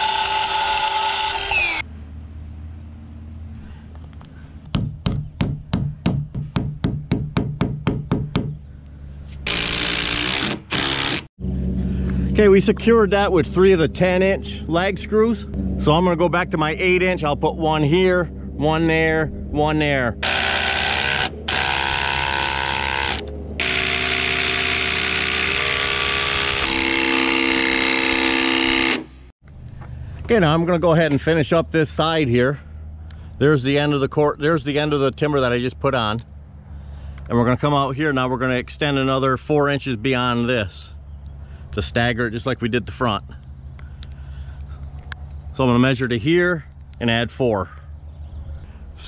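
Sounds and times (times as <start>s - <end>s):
impact driver driving screws: 9.5s - 11.3s.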